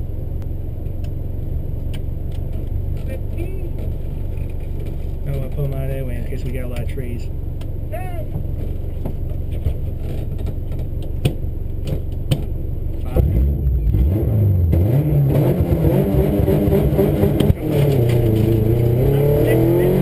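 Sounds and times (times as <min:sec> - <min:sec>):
rally car engine revving: 0:12.9 - 0:20.0.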